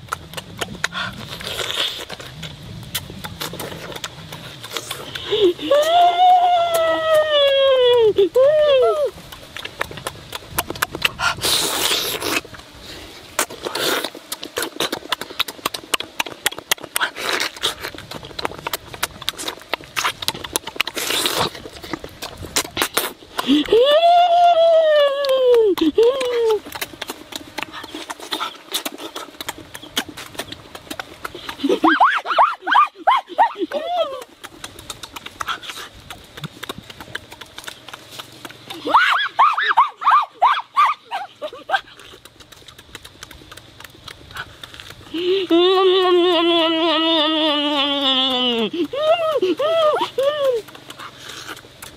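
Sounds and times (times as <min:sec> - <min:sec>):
slurping: 0:00.0 - 0:08.0, 0:08.9 - 0:23.9, 0:41.0 - 0:51.9
wet smacking and chewing: 0:00.0 - 0:51.9.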